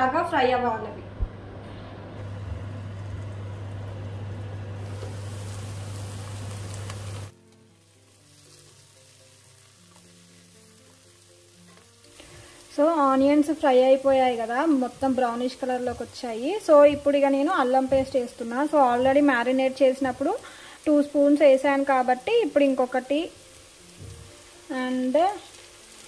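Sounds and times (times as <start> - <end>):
faint background music: 0.0 - 1.3, 7.3 - 26.0
onions sizzling in oil: 2.2 - 26.0.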